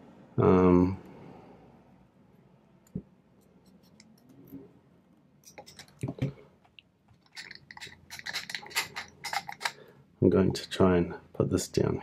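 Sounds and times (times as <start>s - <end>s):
padlock clicking and rattling: 7.2s - 9.8s.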